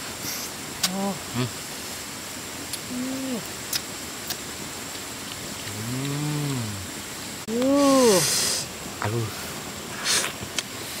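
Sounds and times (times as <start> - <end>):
man humming: 0.8 - 1.6, 2.8 - 3.5, 5.7 - 6.9, 7.5 - 8.5
woman humming: 0.8 - 1.6, 2.8 - 3.5, 5.7 - 6.9, 7.5 - 8.4.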